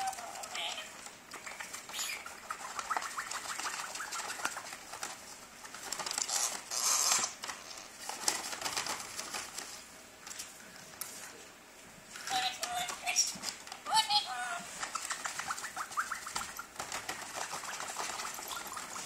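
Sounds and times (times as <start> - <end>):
paper bag crinkling and rustling: 4.6 - 10.5.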